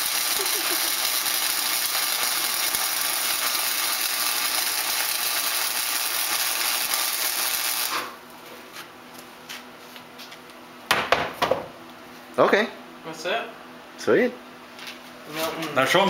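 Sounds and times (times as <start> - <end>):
welder arc crackling: 0.0 - 8.2.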